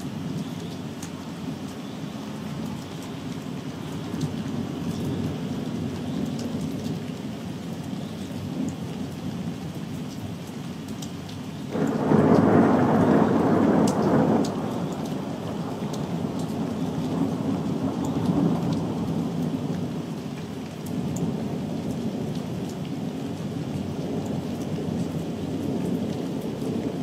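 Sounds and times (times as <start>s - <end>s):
raindrop ticks: 0.0s - 27.0s
rain hissing: 11.6s - 27.0s
thunder rolling: 11.7s - 19.0s.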